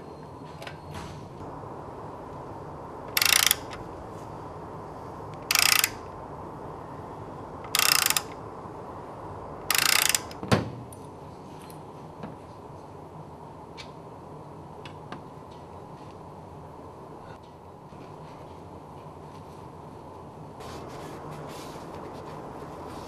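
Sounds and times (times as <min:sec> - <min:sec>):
ratchet clicking: 0:03.1 - 0:03.8, 0:05.4 - 0:06.0, 0:07.6 - 0:08.4, 0:09.7 - 0:10.4.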